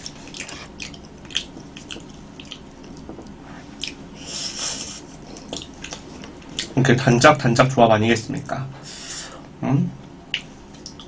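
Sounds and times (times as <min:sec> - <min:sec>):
wet squishy chewing: 0:00.0 - 0:04.1, 0:05.2 - 0:06.8, 0:10.3 - 0:11.0.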